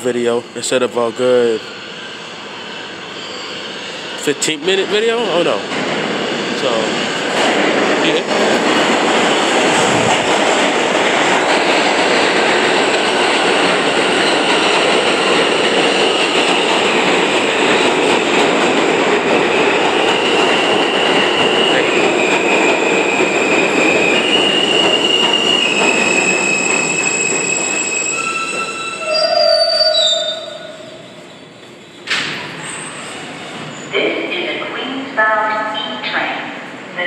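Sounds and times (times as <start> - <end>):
train wheels rumbling on rail: 0.0 - 34.8
high-pitched wheel squealing: 23.8 - 31.4.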